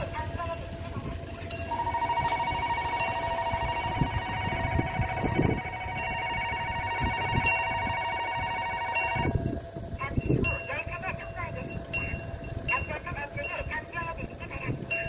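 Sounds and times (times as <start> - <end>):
level crossing warning bell: 0.0 - 15.0.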